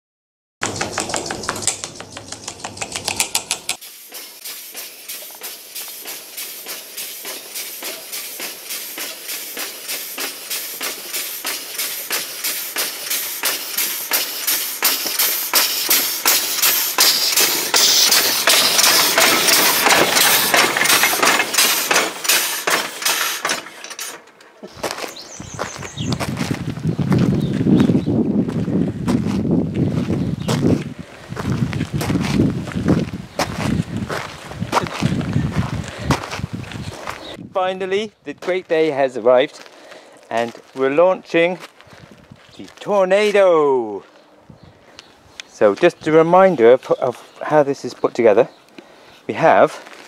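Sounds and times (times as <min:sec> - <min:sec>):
air locomotive chuffing: 0:00.7 - 0:24.4
clanking: 0:04.8 - 0:25.7.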